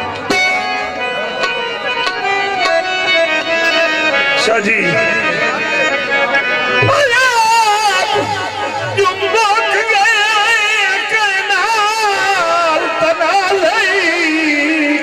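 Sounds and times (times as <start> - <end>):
free-reed instrument chords: 0.0 - 15.0.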